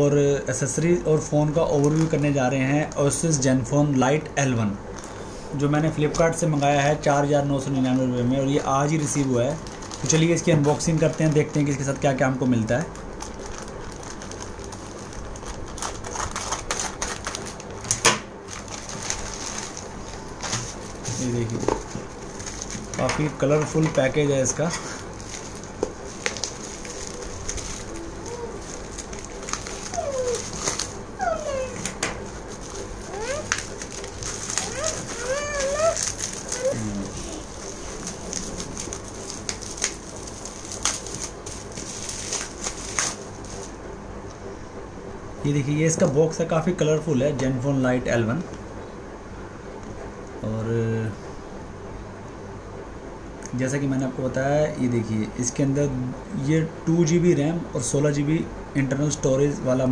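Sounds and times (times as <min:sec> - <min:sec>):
bubble wrap crackling: 0:01.4 - 0:03.2, 0:07.8 - 0:23.4, 0:24.0 - 0:43.8
plastic crinkling: 0:01.6 - 0:03.2, 0:08.4 - 0:43.8
scissors cutting plastic: 0:15.2 - 0:20.6, 0:25.3 - 0:43.2.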